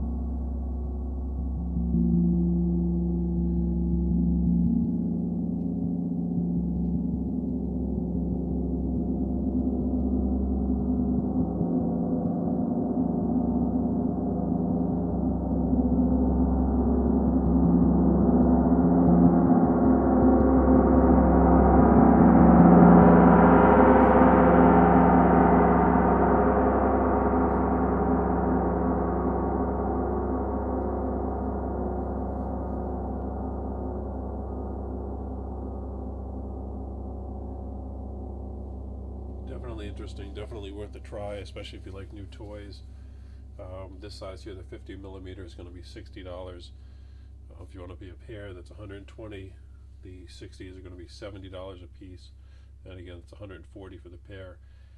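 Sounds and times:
gong soft roll: 0.0s - 43.0s.

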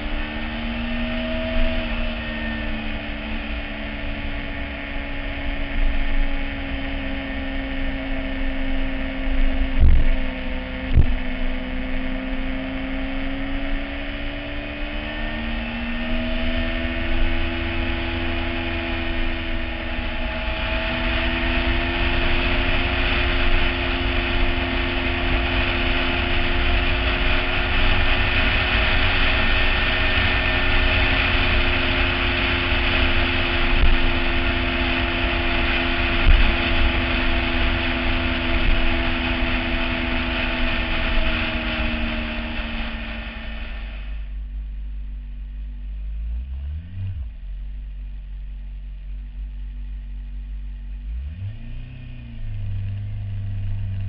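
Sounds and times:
motorcycle engine running: 0.0s - 54.0s
wind noise: 9.2s - 11.3s, 18.9s - 44.2s.

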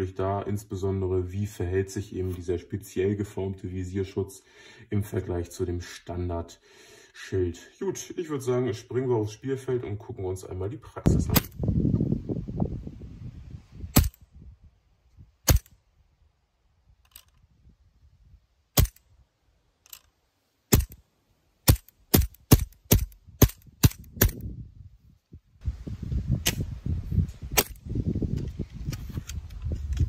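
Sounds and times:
airsoft gun shots: 11.3s - 11.6s, 13.9s - 14.2s, 15.4s - 15.7s, 18.8s - 19.0s, 20.7s - 21.0s, 21.6s - 24.4s.

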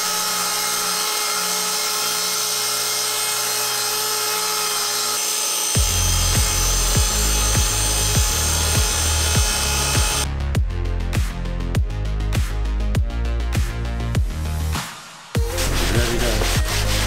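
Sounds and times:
circular saw cutting board: 0.0s - 10.3s
background music with steady beat: 5.8s - 17.0s.

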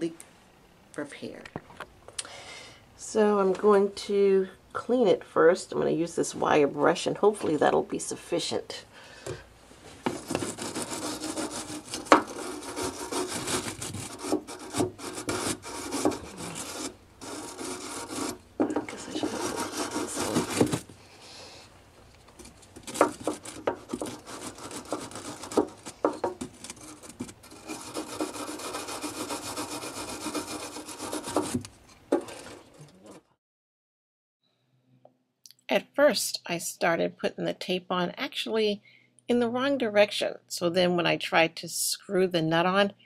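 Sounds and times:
brush knocking on metal: 10.1s - 20.8s
wire brush scrubbing metal: 10.1s - 20.8s, 22.8s - 33.2s.

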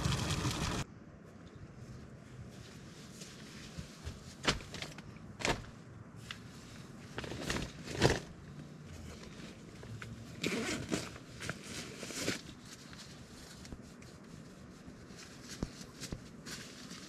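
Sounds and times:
backpack rummaging rustle: 7.0s - 8.4s, 10.4s - 13.8s.

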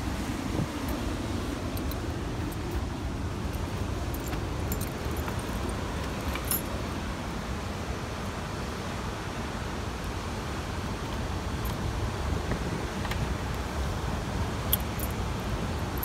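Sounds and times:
keys jingling: 1.7s - 6.9s, 14.7s - 15.2s
light metal clicks: 3.5s - 6.8s, 14.6s - 15.2s.

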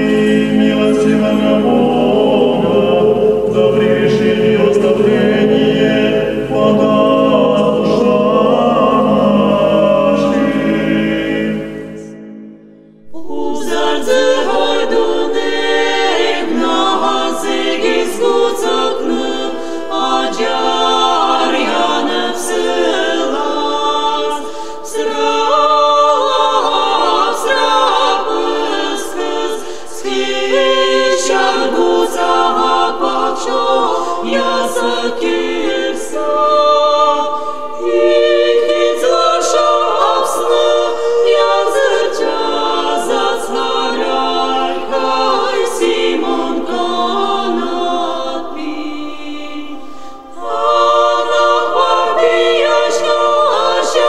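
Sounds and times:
unaccompanied choir singing: 0.0s - 54.0s.

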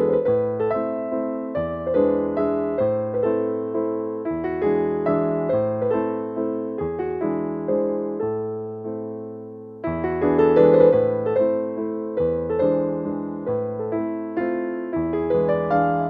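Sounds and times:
piano broken chords: 0.0s - 16.0s.

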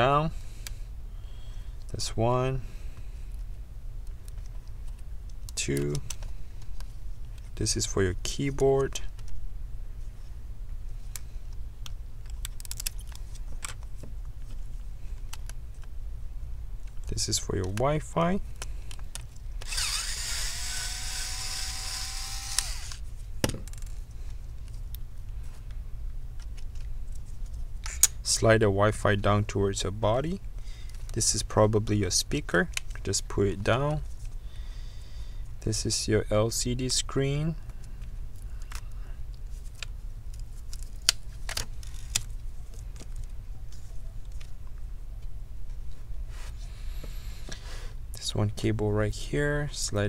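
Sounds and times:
steady low hum: 0.0s - 50.0s
electric screwdriver whining: 19.6s - 23.0s.

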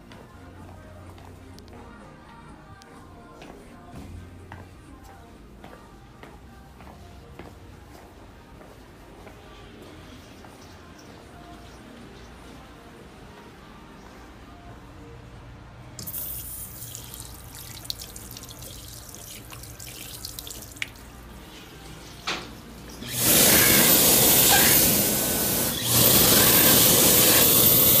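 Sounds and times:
tap water running into sink: 16.0s - 21.1s
hand dryer blowing air: 23.0s - 28.0s.

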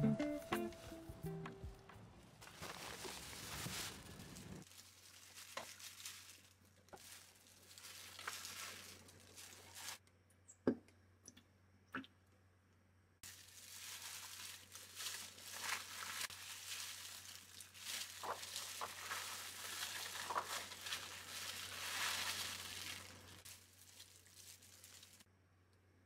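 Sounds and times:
plastic gloves rustling: 2.3s - 10.0s, 13.2s - 25.3s
plastic garbage bags rustling: 2.4s - 10.0s, 13.2s - 25.3s.

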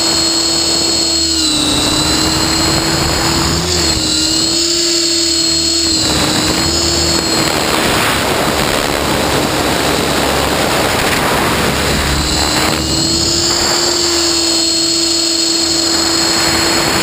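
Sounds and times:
helicopter rotor noise: 0.0s - 17.0s
motor and gear whine: 0.0s - 17.0s
rush of air: 1.5s - 14.8s.

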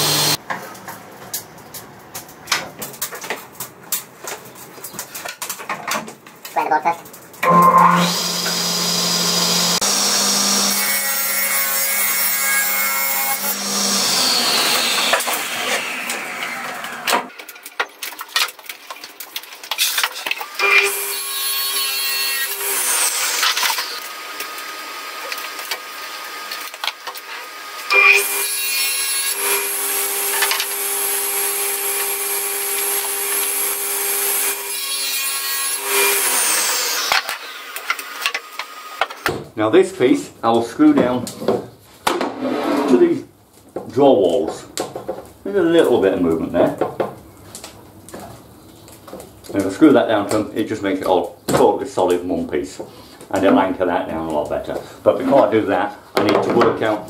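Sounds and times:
saw winding down whine: 0.0s - 0.4s, 7.4s - 10.8s
table saw cutting board: 0.0s - 0.4s, 7.4s - 17.3s, 20.4s - 39.2s, 42.2s - 43.0s.

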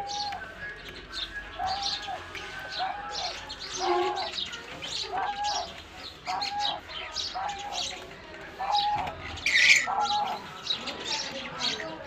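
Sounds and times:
doves cooing: 0.0s - 12.0s
small birds chirping: 0.0s - 12.0s.

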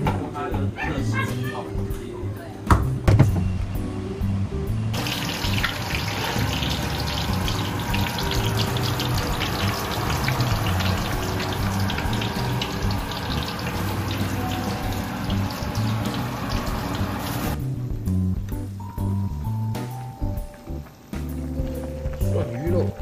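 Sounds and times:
fish deep-frying in oil: 4.9s - 17.6s.

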